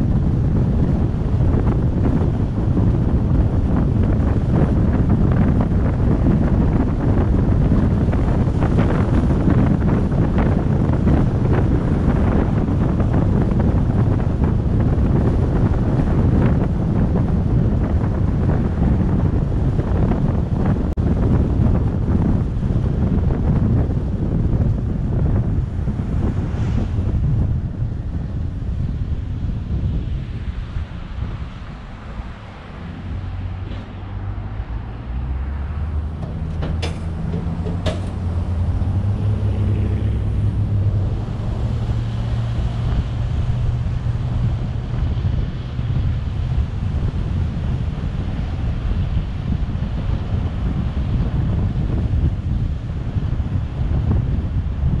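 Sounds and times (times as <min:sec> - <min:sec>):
low road rumble: 0:00.0 - 0:55.0
wind rush on microphone: 0:00.0 - 0:55.0
trailer rattling: 0:31.4 - 0:45.0.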